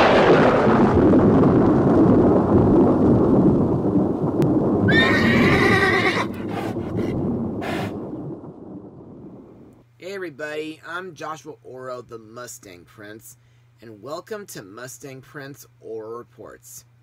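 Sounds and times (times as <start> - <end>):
thunder rumble: 0.0 - 9.8
horse neighing: 4.9 - 7.9.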